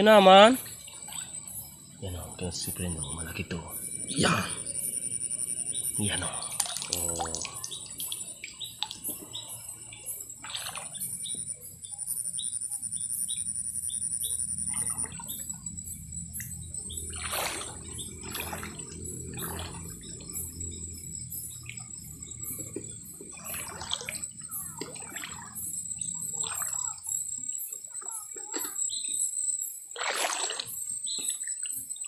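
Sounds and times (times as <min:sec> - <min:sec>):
night insects chirring: 0:00.0 - 0:32.0
stream water splashing: 0:06.0 - 0:11.4, 0:16.4 - 0:20.8, 0:21.6 - 0:27.0, 0:29.9 - 0:31.6.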